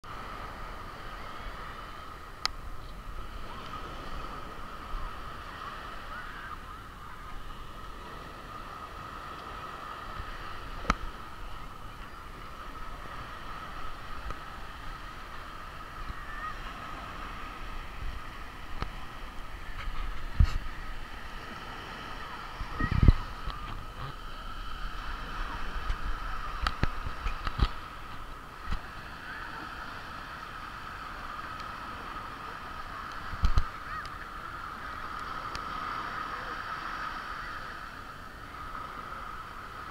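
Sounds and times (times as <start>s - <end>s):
gentle surf: 0.0s - 39.9s
wind buffeting microphone: 2.1s - 29.4s.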